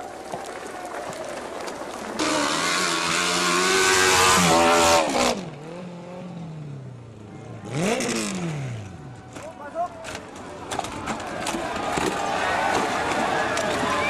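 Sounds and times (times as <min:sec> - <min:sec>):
motocross bike engine revving: 0:02.2 - 0:09.0.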